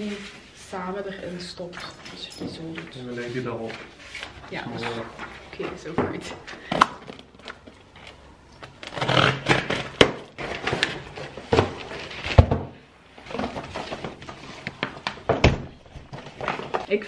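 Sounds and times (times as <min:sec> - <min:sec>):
paper rustling and sliding: 0:01.7 - 0:05.8, 0:13.2 - 0:16.9.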